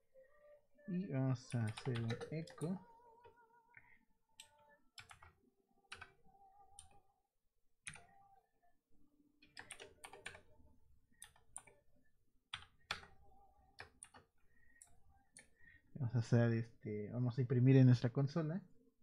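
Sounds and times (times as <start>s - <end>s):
keyboard keystrokes: 7.8s - 8.2s.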